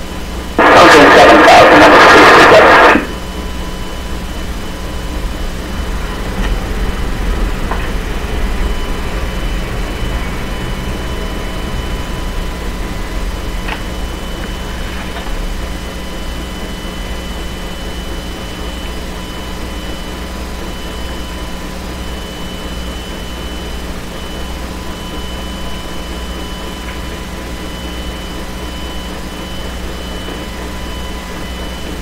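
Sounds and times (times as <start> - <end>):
jet airliner noise: 0.0 - 32.0.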